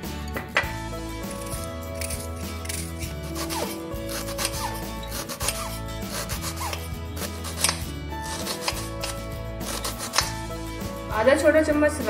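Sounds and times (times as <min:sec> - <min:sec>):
background music: 0:00.0 - 0:12.0
knife cutting onion: 0:01.2 - 0:10.4.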